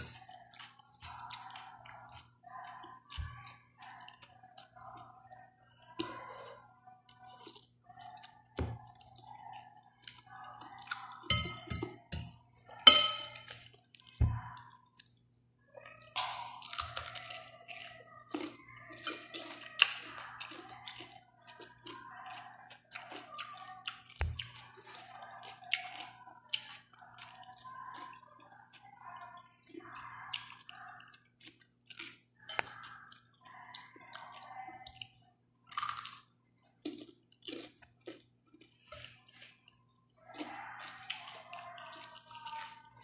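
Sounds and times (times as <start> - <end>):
slurping and chewing: 0.0 - 43.0
cutlery clicking on ceramic bowl: 11.3 - 13.6.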